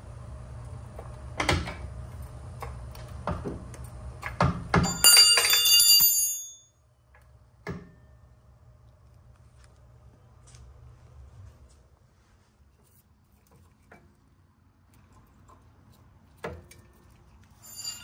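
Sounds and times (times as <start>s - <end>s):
wrench clattering on concrete: 4.8s - 6.7s.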